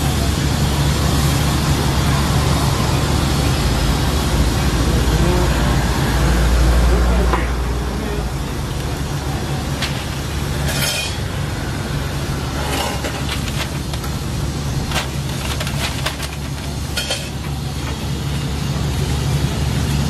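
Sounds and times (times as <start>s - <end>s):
background traffic rumble: 0.0s - 20.0s
kitchen noise: 9.7s - 11.3s, 12.5s - 18.0s.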